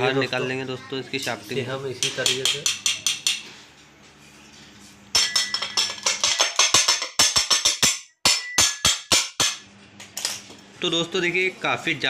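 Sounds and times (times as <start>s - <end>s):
sharp metallic knocks: 5.2s - 9.7s.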